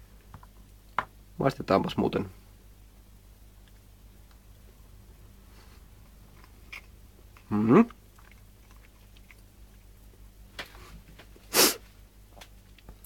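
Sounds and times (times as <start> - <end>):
person chewing: 6.3 - 10.2.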